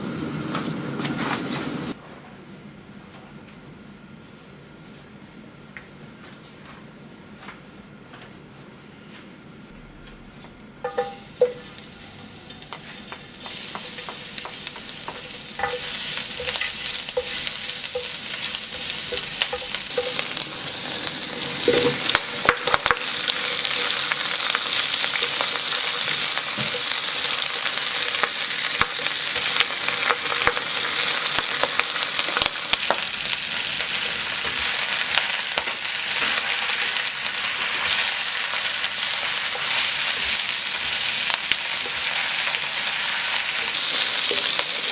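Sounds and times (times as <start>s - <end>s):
spatula scraping and tapping a wok: 10.8s - 11.8s, 12.7s - 20.7s, 21.3s - 33.0s
vegetables sizzling in hot oil: 10.8s - 44.9s.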